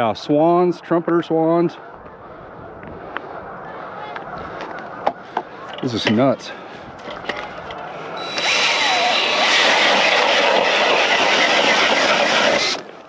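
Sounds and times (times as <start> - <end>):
power ice auger grinding: 8.2 - 13.0.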